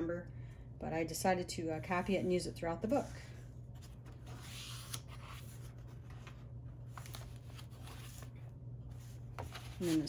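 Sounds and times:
paper page rustling: 3.7 - 10.0.

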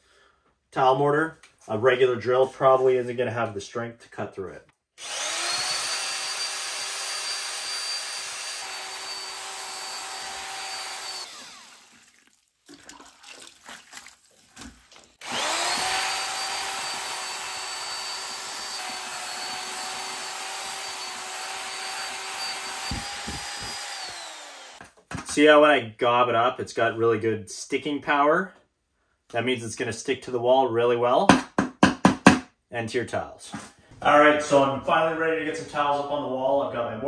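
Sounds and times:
drill motor whining: 5.0 - 12.0, 15.2 - 24.8
mixer knocking and scraping: 15.2 - 25.4.

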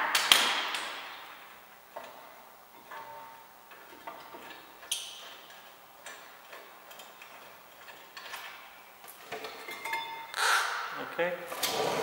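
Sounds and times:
light metal clinks: 9.4 - 10.3.

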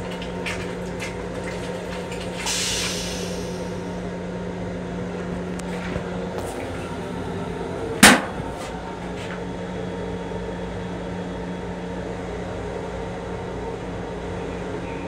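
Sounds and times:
railcar equipment hum: 0.0 - 15.0.

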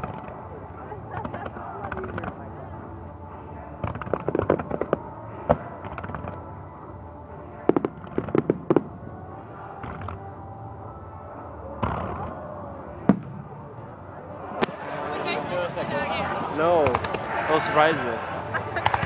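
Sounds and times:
music playing: 0.0 - 19.0
fireworks bangs: 3.8 - 6.5, 7.6 - 9.0, 11.8 - 15.4, 16.8 - 17.7.

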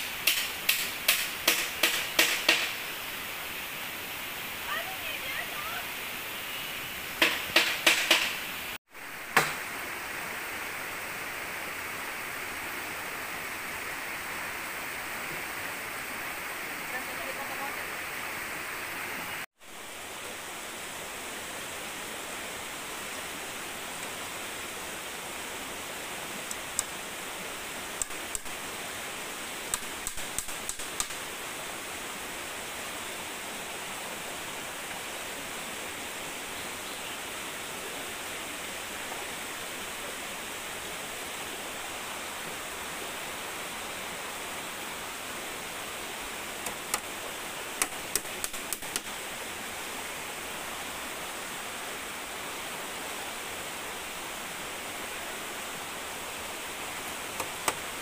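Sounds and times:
river rushing: 0.0 - 58.0
hammer knocking on bamboo: 0.2 - 2.8, 7.2 - 8.4, 9.4 - 9.6.

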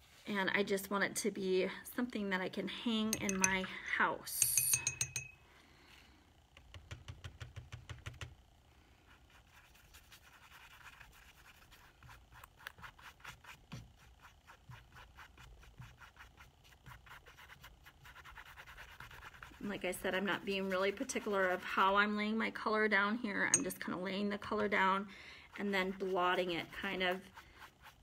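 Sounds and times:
paintbrush scrubbing on canvas: 9.1 - 22.0, 25.5 - 28.0.

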